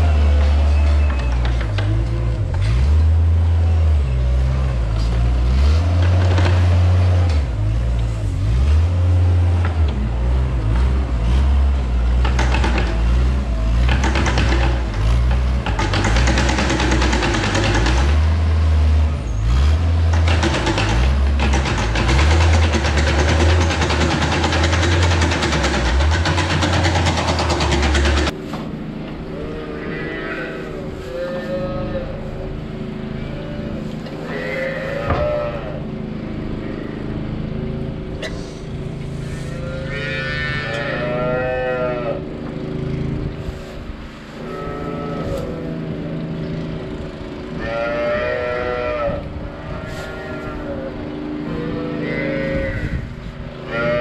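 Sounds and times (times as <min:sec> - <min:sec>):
diesel loader engine revving: 0:00.0 - 0:54.0
cow mooing: 0:29.3 - 0:32.3, 0:33.2 - 0:35.8, 0:39.3 - 0:42.3, 0:44.4 - 0:46.1, 0:47.6 - 0:53.1, 0:53.7 - 0:54.0.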